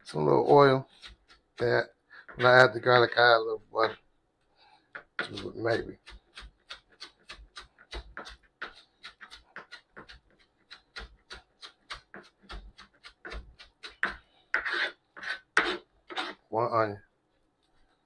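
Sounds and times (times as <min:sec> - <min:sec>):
knife chopping on cutting board: 0:00.4 - 0:01.7, 0:04.9 - 0:16.4.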